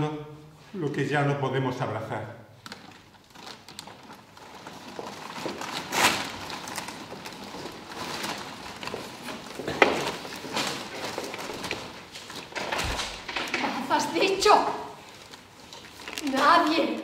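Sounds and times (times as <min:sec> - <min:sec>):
footsteps on wooden stage: 0:04.2 - 0:13.8.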